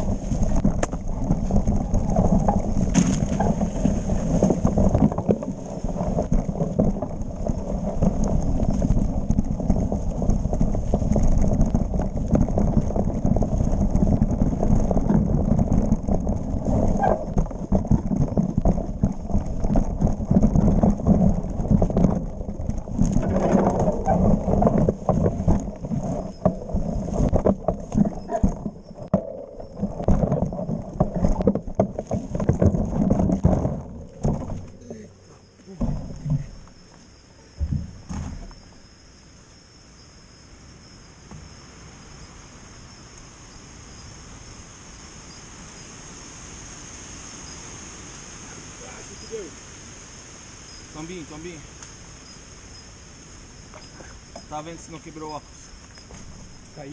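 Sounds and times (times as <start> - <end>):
bike tyre rumble: 0.0 - 39.8, 40.4 - 56.9.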